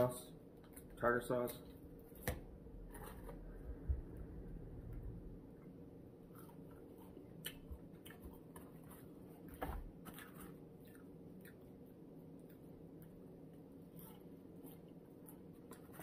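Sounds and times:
person chewing crunchy food: 6.2s - 16.0s.

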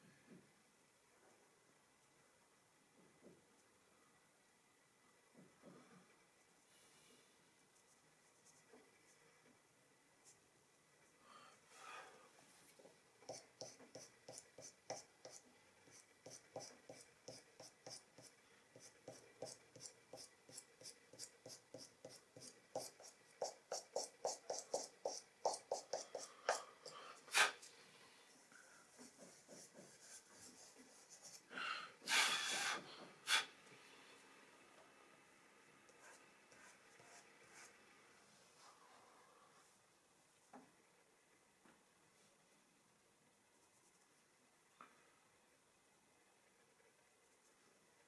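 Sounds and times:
pastel scratching on paper: 13.3s - 27.7s, 28.9s - 31.5s
hand brushing on paper: 20.2s - 31.5s.

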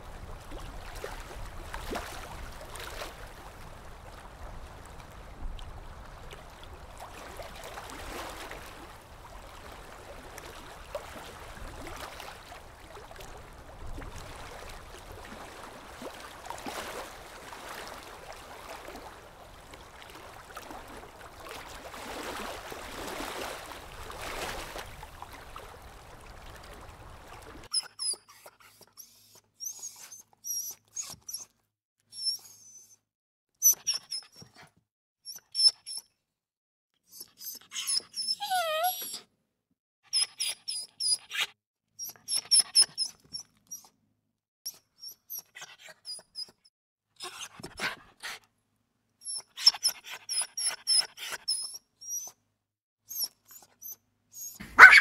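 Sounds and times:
water splashing: 0.0s - 27.7s
puppy yipping and whimpering: 27.7s - 31.5s, 32.2s - 33.0s, 33.6s - 34.6s, 35.3s - 36.0s, 37.1s - 39.3s, 40.1s - 43.9s, 44.7s - 47.4s, 49.2s - 52.4s, 53.1s - 55.0s.

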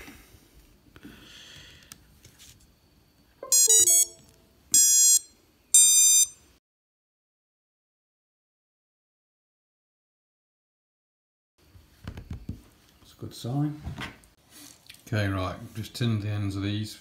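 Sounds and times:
motor startup beeps: 3.4s - 6.4s.

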